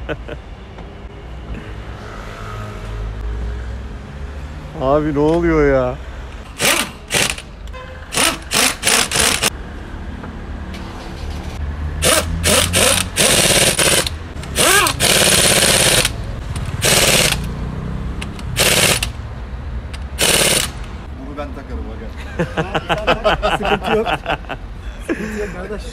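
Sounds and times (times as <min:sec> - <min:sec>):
pneumatic impact wrench bursts: 0:06.4 - 0:09.5, 0:12.0 - 0:17.6, 0:18.3 - 0:19.2, 0:20.1 - 0:20.9.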